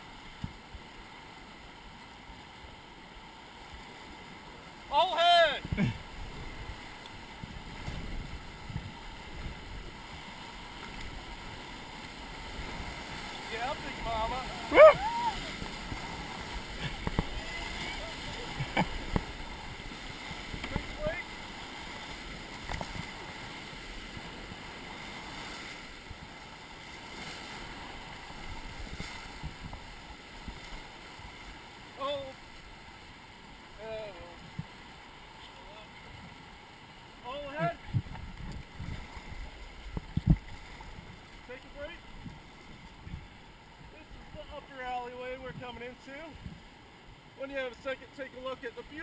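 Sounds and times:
paddles splashing: 0:00.0 - 0:49.0
river water rushing: 0:00.0 - 0:49.0
wind noise on microphone: 0:07.4 - 0:10.2, 0:28.3 - 0:30.8, 0:37.6 - 0:41.2, 0:42.2 - 0:44.4.

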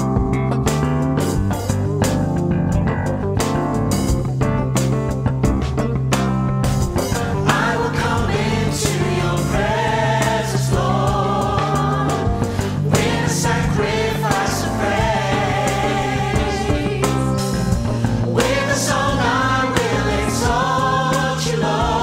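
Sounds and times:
band with drums bass keyboard: 0:00.0 - 0:22.0
gospel group singing in harmony: 0:07.0 - 0:22.0.

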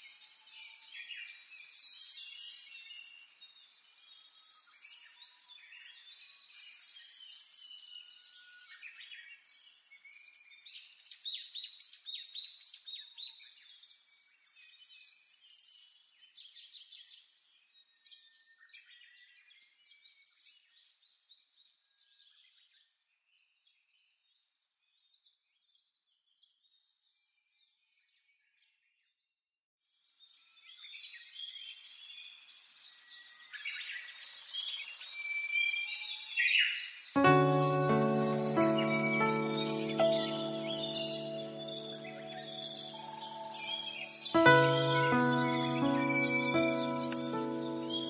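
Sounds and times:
songbirds chirping and singing: 0:37.2 - 0:48.0.

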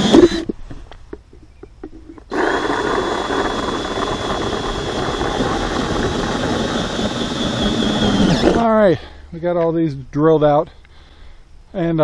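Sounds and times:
cordless drill hole saw cutting plastic: 0:00.0 - 0:00.5, 0:02.2 - 0:08.6.

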